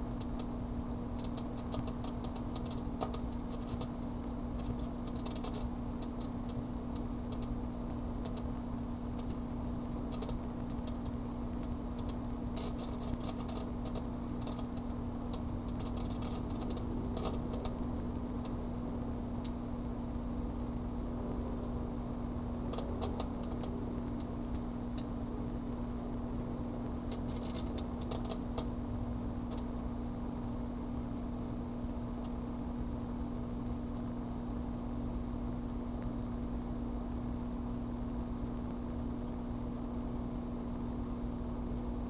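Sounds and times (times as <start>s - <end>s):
foil arcing crackles and snaps: 0.0s - 21.0s, 21.6s - 34.3s
microwave oven humming: 0.0s - 42.0s.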